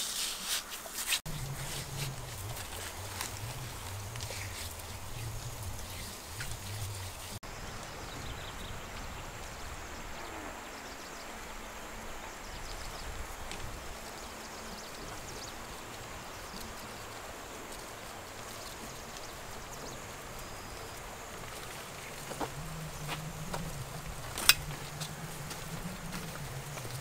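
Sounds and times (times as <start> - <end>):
steady rushing noise with rumble: 1.3 - 20.1
thin high insect drone: 1.3 - 27.0.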